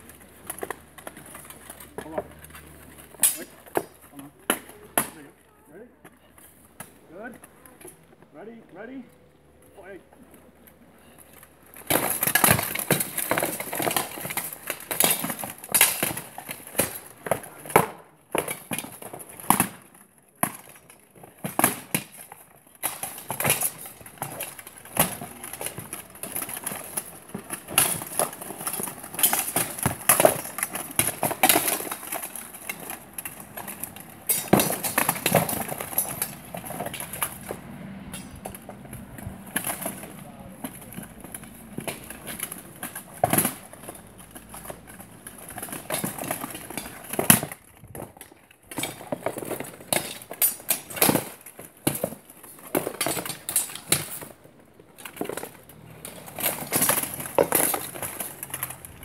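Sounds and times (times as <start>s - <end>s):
swords clashing: 3.2s - 3.9s
armour plates rattling: 20.4s - 59.0s.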